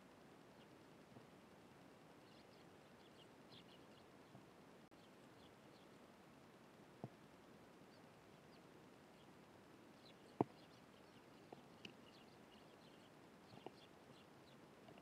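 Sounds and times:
sparrows chirping: 2.1 - 6.0, 7.9 - 15.0.

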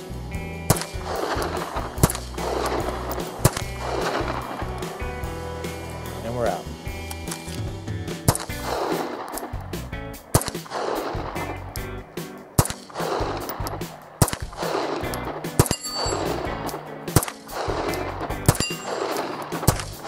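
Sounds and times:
background music: 0.0 - 20.0
pistol shots: 0.7 - 4.6, 8.2 - 20.0.

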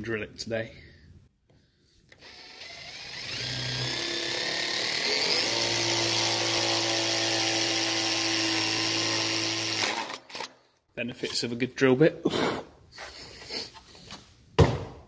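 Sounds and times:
cordless drill boring into wood: 2.2 - 10.5.

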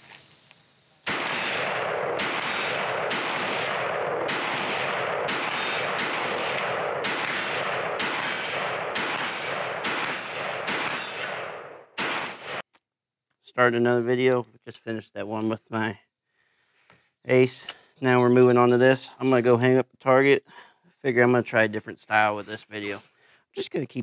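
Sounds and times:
gunshots with echo: 1.1 - 12.6.

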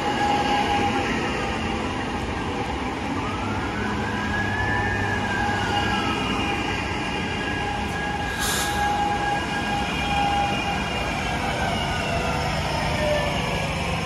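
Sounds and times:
train rail rumble: 4.2 - 14.0
short hiss: 8.3 - 8.9.

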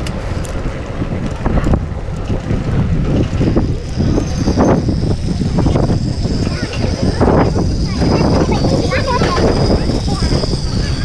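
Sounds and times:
wind blowing across microphone: 0.0 - 11.0.

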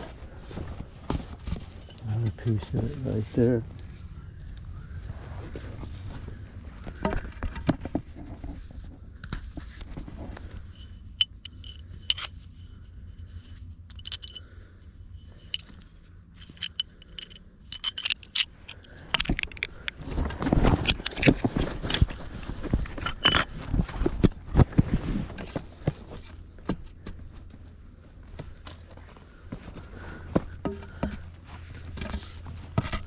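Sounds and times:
china shards clinking and scraping: 10.6 - 14.5, 15.2 - 19.7.

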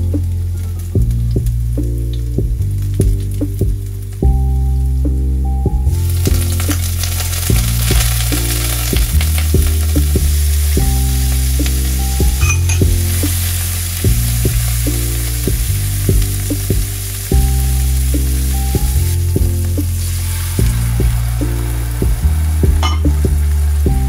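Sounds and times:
background music: 0.0 - 24.0
seafood sizzling in a pan: 6.1 - 22.6.

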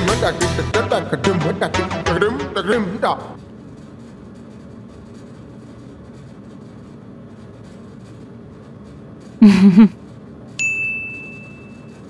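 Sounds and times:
bell-like ding: 10.6 - 12.0.

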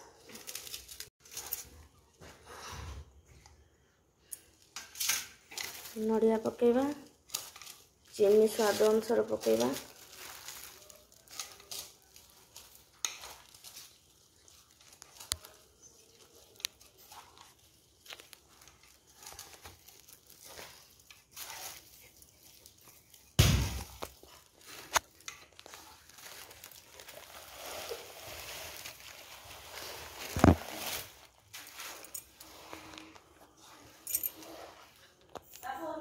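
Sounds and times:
hand squishing thick batter: 7.8 - 34.0.

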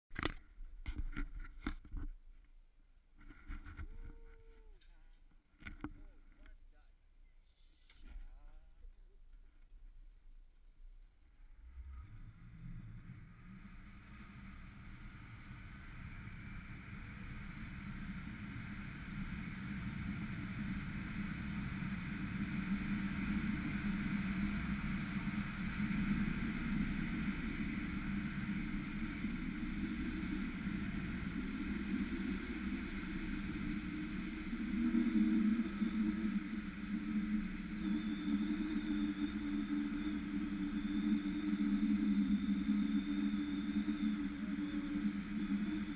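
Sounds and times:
steady hum: 11.2 - 45.9
thin high whine: 11.4 - 45.9
zip-line trolley on cable: 11.5 - 45.9
wind rushing: 26.9 - 45.9.

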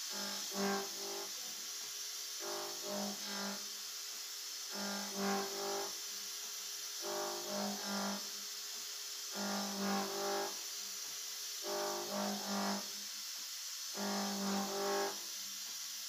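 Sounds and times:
milling machine motor whine: 0.0 - 1.4, 2.4 - 3.7, 4.7 - 6.0, 7.0 - 8.4, 9.3 - 10.6, 11.6 - 12.9, 14.0 - 15.2
steady high hiss: 0.0 - 16.0.

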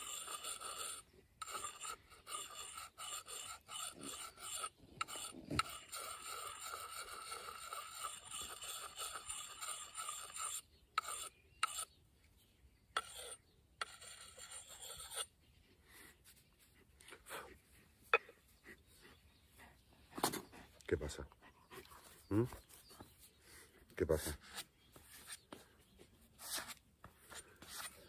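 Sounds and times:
sharpening stone rasping on steel: 0.0 - 11.9, 13.0 - 15.3.

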